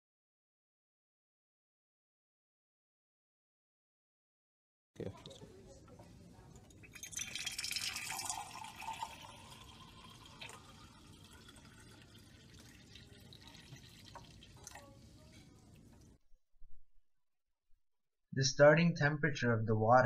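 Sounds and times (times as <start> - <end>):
tap water running into beaker: 6.6 - 16.1.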